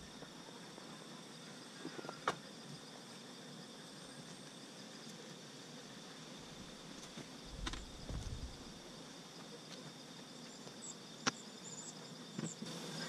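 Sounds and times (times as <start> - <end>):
insects chirring: 0.0 - 13.0
low rumble: 7.5 - 8.7.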